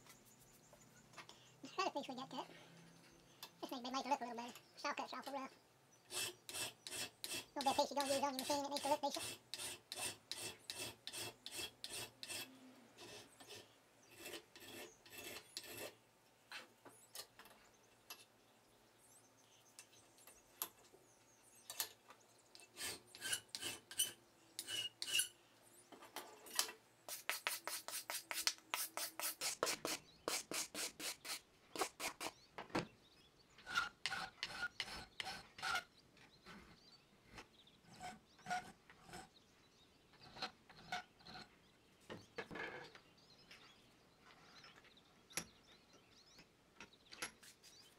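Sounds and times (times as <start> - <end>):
hand file scraping metal: 6.1 - 16.0, 22.5 - 25.3, 27.1 - 32.4, 33.6 - 35.9, 37.9 - 39.3.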